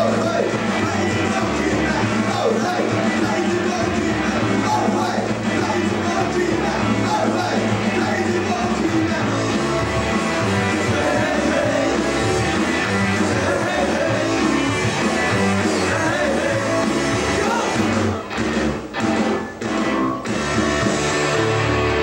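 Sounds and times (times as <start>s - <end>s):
person singing lead vocal: 0.0s - 18.1s
bass: 0.0s - 22.0s
drums: 0.0s - 22.0s
electric guitar: 0.0s - 22.0s.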